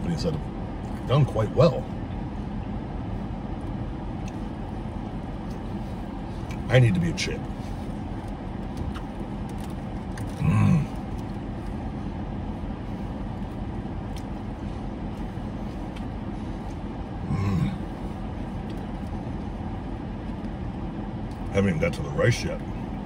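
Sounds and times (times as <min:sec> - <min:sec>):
car air conditioning hum: 0:00.0 - 0:23.0
man grunting while eating: 0:10.3 - 0:11.0, 0:17.2 - 0:18.0.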